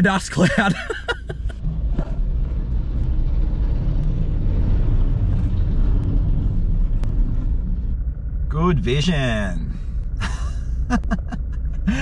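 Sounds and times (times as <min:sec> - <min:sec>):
vehicle driving on gravel: 0:01.4 - 0:09.6.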